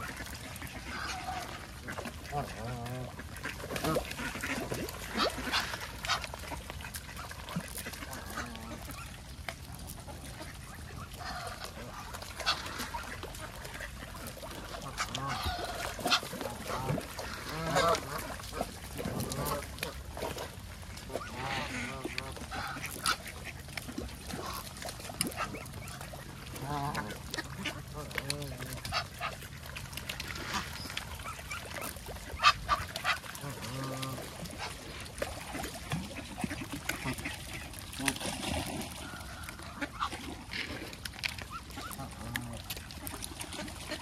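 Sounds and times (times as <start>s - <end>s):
geese honking: 0.0s - 6.4s, 10.4s - 19.7s, 21.1s - 23.5s
ducks calling: 10.2s - 20.0s, 21.0s - 40.8s.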